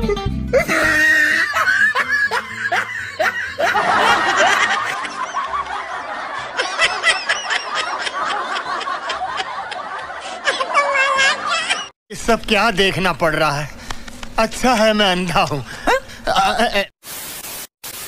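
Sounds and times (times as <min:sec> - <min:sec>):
person laughing in bursts: 0:00.6 - 0:11.9, 0:15.7 - 0:17.0.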